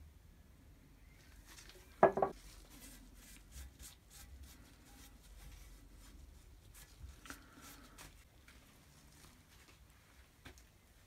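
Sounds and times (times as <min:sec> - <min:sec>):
object knocking on wooden workbench: 0:02.0 - 0:02.4.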